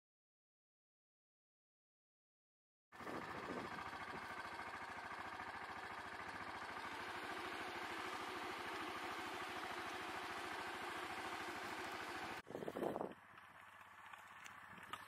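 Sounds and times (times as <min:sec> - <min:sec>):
quad engine idling: 0:03.0 - 0:15.0.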